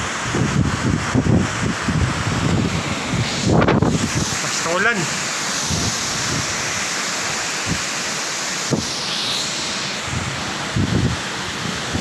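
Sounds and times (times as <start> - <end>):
wind buffeting microphone: 0.0 - 4.4, 5.6 - 6.7, 10.0 - 12.0
heavy rain: 0.0 - 12.0.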